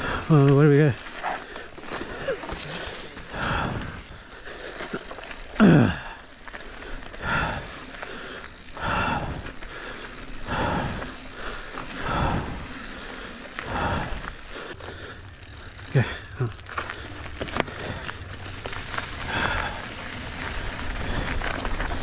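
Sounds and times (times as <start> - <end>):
person breathing hard: 0.0 - 0.3, 1.2 - 22.0
tyre and wind noise: 16.7 - 22.0.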